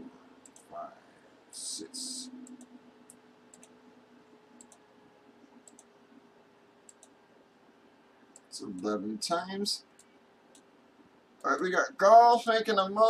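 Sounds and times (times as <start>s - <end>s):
faint computer mouse clicks: 2.4s - 3.8s, 4.6s - 4.8s, 5.6s - 5.9s, 6.9s - 7.2s.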